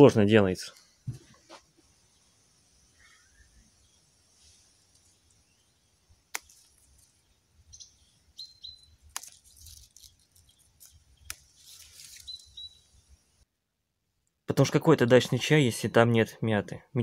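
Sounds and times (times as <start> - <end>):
leaves rustling: 0.8 - 13.4
bird chirping: 1.9 - 13.4
stems snapping: 6.3 - 7.2, 9.0 - 12.5.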